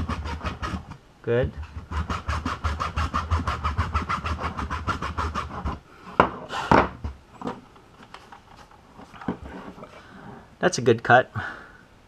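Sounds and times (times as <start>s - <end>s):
hacksaw cutting plastic: 0.0s - 5.8s
rag rubbing: 0.0s - 7.1s.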